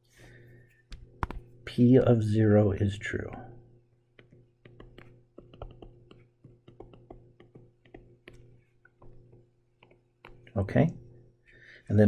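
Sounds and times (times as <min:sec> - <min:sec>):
low electrical hum: 0:00.0 - 0:12.0
stylus tapping on tablet screen: 0:00.9 - 0:01.6, 0:03.9 - 0:10.6.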